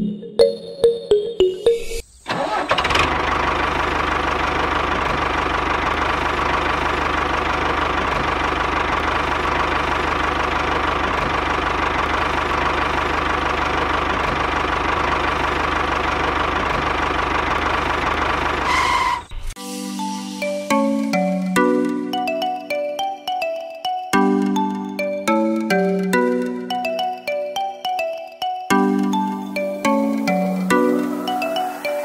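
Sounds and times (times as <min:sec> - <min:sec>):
tractor engine running: 0:02.3 - 0:19.4.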